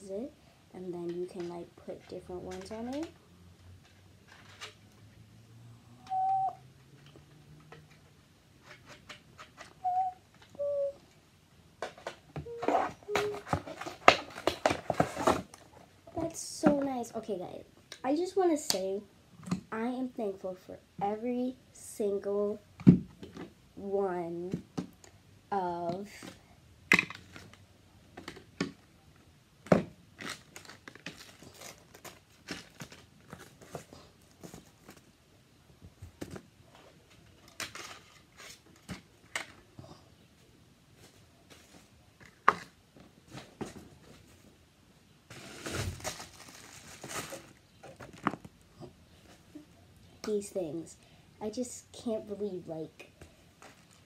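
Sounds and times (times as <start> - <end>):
paper packaging crinkling: 30.2 - 35.1, 45.3 - 48.4.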